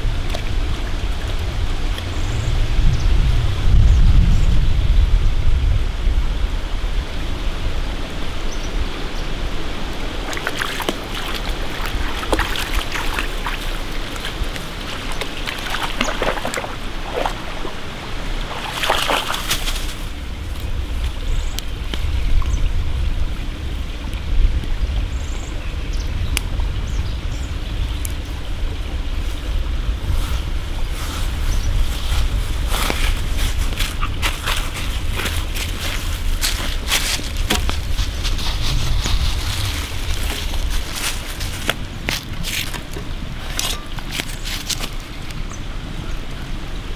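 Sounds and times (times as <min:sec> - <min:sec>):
stream running over stones: 0:00.0 - 0:02.4, 0:06.9 - 0:25.2, 0:27.8 - 0:46.9
dog splashing through water: 0:10.2 - 0:20.0.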